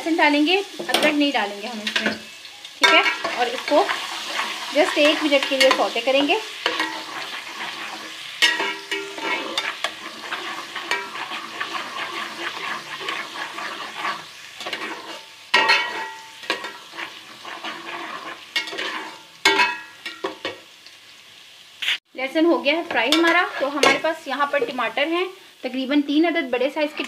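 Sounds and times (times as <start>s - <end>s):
garlic sizzling in oil: 0.0s - 27.0s
spoon scraping a pot: 1.9s - 20.5s, 23.0s - 24.1s.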